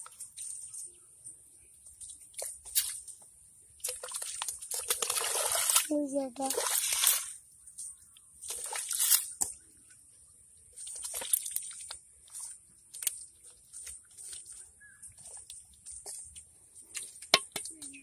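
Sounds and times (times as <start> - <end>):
bowl scraping through mud: 6.5 - 7.4
wet mud squelching: 10.7 - 18.0.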